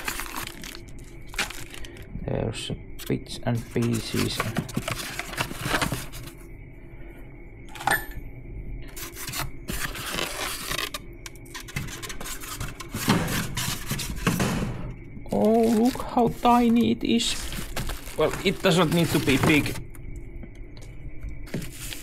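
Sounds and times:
metal parts rubbing and scraping: 11.5 - 14.4.

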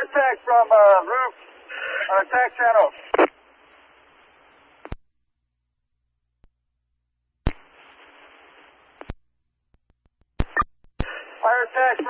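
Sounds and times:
radio hiss: 0.0 - 5.0, 7.5 - 9.2, 10.4 - 12.0
radio transmitter click: 4.8 - 5.0, 7.5 - 7.8, 9.0 - 11.2.

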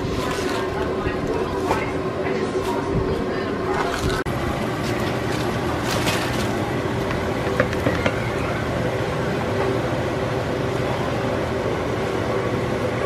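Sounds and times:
chopped cabbage rustling into pot: 0.0 - 1.9, 3.7 - 7.1
steady background hum: 0.0 - 13.0.

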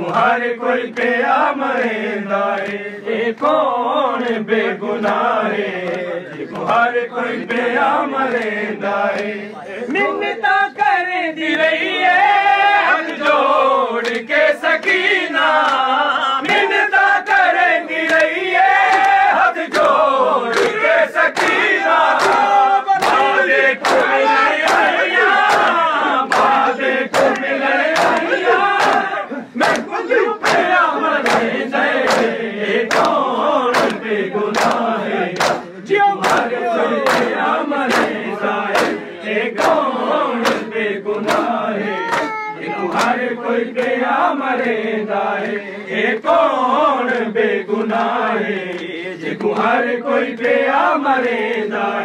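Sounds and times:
crowd of men chanting: 0.0 - 52.0
hands slapping on chests: 2.5 - 6.8, 8.2 - 9.4, 14.0 - 44.8.

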